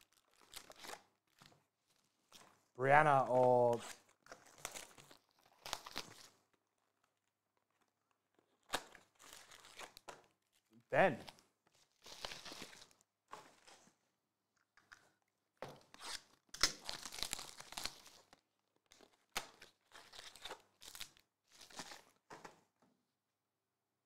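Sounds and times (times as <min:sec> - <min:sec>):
foil packs crinkling and tearing: 0:00.0 - 0:02.6, 0:03.7 - 0:06.4, 0:08.6 - 0:10.3, 0:11.7 - 0:13.0, 0:16.0 - 0:22.2.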